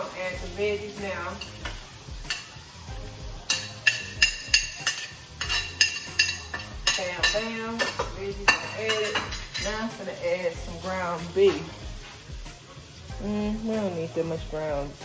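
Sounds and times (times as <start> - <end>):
metal spoon clinking in frying pan: 2.3 - 2.6, 3.5 - 9.9.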